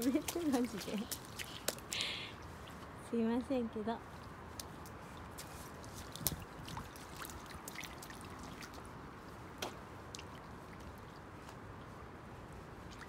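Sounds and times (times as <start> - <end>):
rain on wet asphalt: 0.0 - 2.3
sharp drips and splashes: 0.0 - 3.0, 4.1 - 12.0, 12.8 - 13.0.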